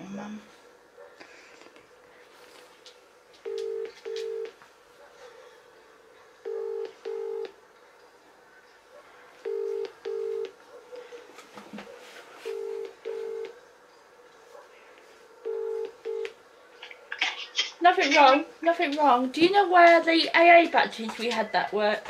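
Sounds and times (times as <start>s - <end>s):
telephone ringing tone: 3.4s - 4.6s, 6.5s - 7.5s, 9.5s - 10.5s, 12.5s - 13.6s, 15.4s - 16.4s.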